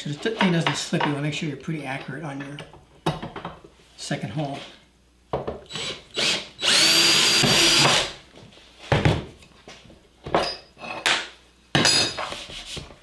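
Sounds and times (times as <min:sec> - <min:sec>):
cordless drill whining: 0:05.7 - 0:08.1
parts clattering on workbench: 0:10.2 - 0:12.4.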